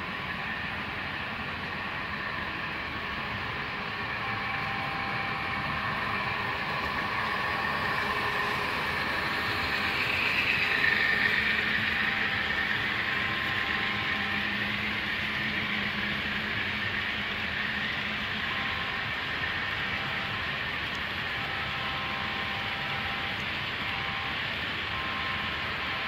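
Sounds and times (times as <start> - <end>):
model train rolling past: 0.0 - 26.0.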